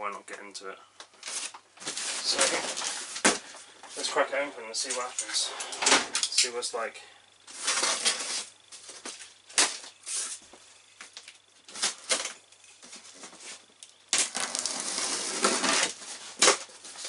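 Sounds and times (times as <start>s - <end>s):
knife slitting tape: 14.1s - 16.7s
knife scraping cardboard: 14.2s - 16.6s.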